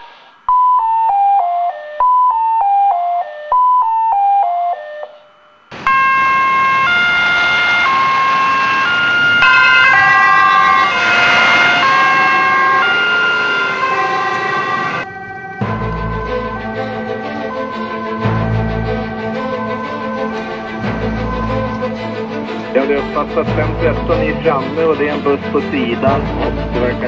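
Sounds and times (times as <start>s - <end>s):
two-tone emergency sirens: 0.0s - 27.0s
descending electronic tone pattern: 5.4s - 27.0s.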